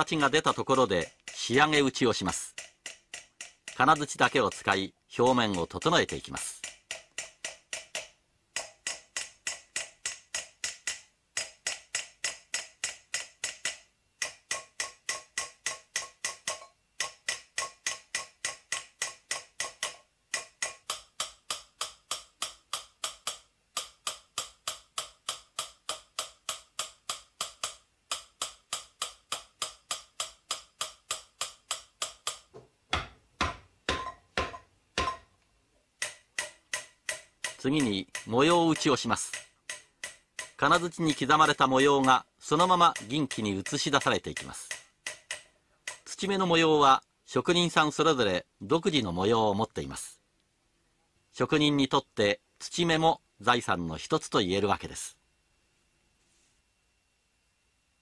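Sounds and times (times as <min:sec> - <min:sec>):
small hammer tapping metal: 0:00.0 - 0:35.4, 0:36.0 - 0:46.4.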